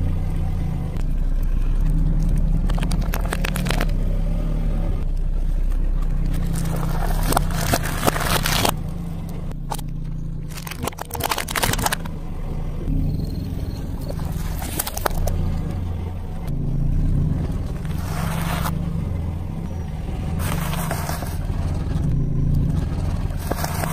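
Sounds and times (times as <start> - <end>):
car engine humming: 0.0 - 23.9
eggs cracking under tyre: 1.0 - 4.1, 5.0 - 12.2, 14.0 - 16.6
tyre crushing objects: 6.2 - 8.8.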